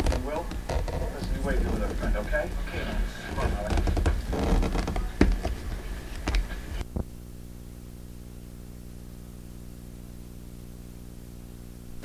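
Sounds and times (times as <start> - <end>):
knocks and rustles: 0.0 - 6.6
steady electrical hum: 0.0 - 12.0.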